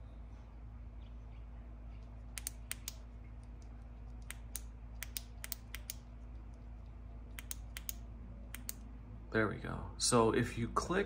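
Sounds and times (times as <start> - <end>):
flashlight switch clicking: 4.2 - 6.0, 7.4 - 8.8.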